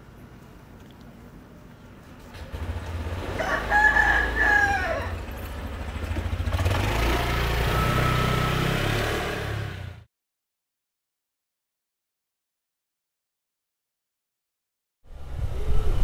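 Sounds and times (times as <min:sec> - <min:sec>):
motor scooter engine pulling away: 0:02.2 - 0:10.1
rooster crowing: 0:03.3 - 0:05.3.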